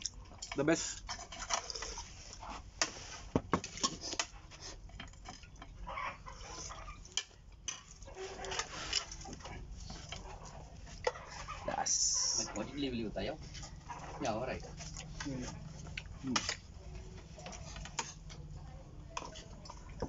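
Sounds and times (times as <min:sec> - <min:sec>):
dishes and spoons clinking: 0:00.0 - 0:02.1, 0:06.6 - 0:11.6.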